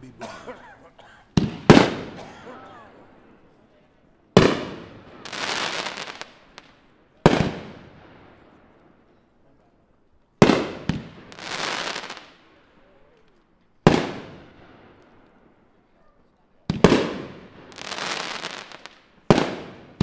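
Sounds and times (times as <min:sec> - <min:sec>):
crackling firework stars: 0:01.3 - 0:02.2, 0:02.9 - 0:20.0
firework bangs: 0:01.3 - 0:02.4, 0:04.3 - 0:08.7, 0:10.4 - 0:12.6, 0:13.8 - 0:15.4, 0:16.7 - 0:20.0.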